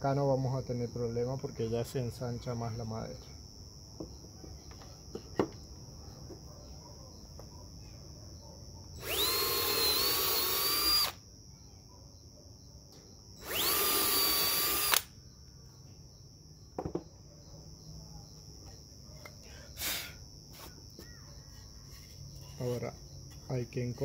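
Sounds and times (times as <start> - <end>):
cordless drill whining: 9.0 - 11.2, 13.4 - 15.1
brief knock: 16.8 - 17.1.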